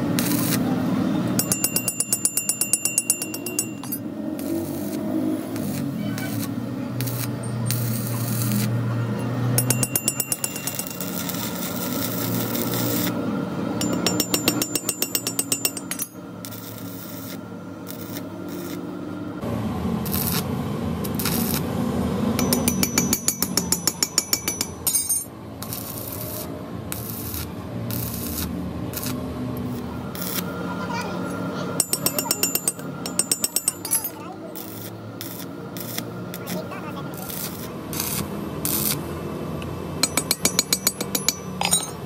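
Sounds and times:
arc welding crackling: 0.0s - 0.8s, 4.3s - 9.1s, 10.2s - 13.2s, 16.4s - 18.9s, 20.0s - 21.7s, 25.6s - 30.6s, 34.0s - 39.1s.

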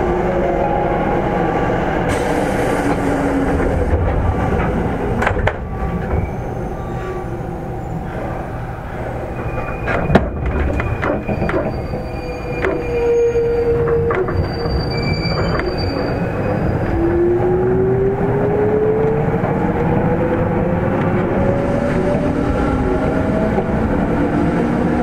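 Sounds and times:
train wheels rumbling on rail: 0.0s - 25.0s
wheel or brake squeal: 9.4s - 16.9s.

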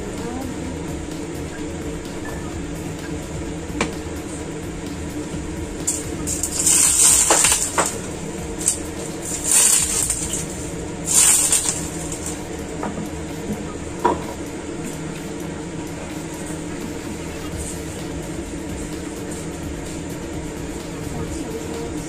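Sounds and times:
steady background hum: 0.0s - 22.0s
hot oil sizzling: 4.0s - 14.2s.

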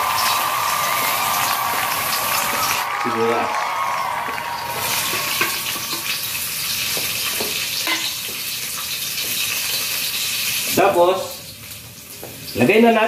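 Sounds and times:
onion sizzling in hot oil: 4.8s - 13.0s.

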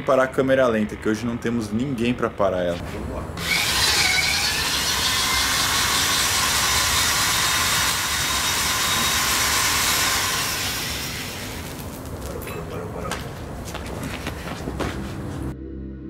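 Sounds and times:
electric drill whirring: 3.4s - 11.9s.

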